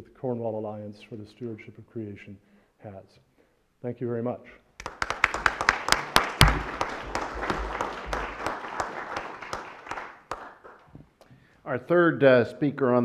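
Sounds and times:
audience applause: 4.8s - 10.9s.

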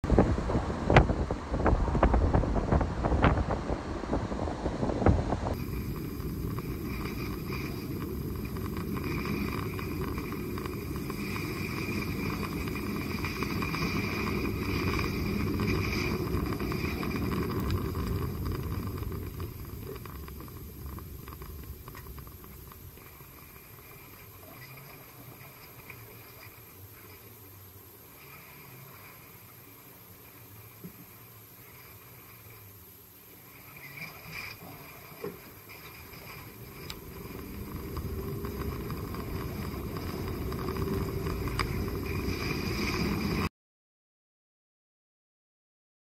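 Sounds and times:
wind buffeting microphone: 0.0s - 23.0s, 36.6s - 43.5s.

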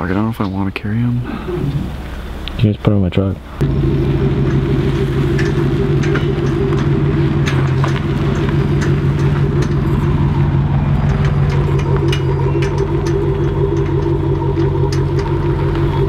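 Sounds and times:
truck engine idling: 0.2s - 16.0s
faint clicks: 4.4s - 16.0s.

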